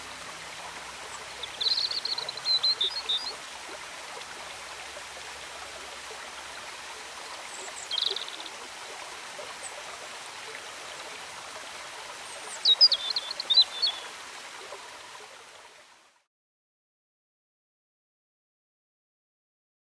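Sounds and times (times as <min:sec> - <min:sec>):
bird chirping: 0:01.4 - 0:03.4, 0:07.5 - 0:08.5, 0:12.6 - 0:14.0.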